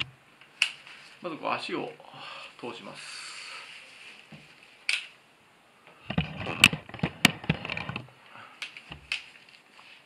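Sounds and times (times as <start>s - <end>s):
sharp clicks from brace frame: 0.0s - 0.9s, 4.8s - 5.2s, 6.1s - 9.6s
knee brace scraping: 6.0s - 8.1s
rustling straps and padding: 6.0s - 8.1s.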